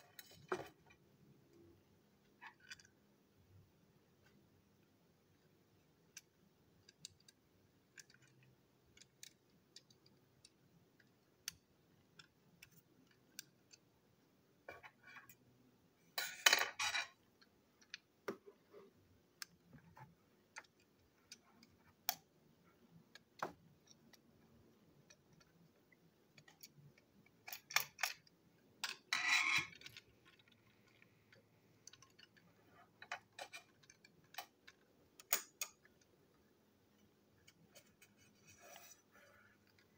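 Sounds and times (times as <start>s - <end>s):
plastic toy parts clicking: 5.3s - 13.9s, 26.2s - 36.3s.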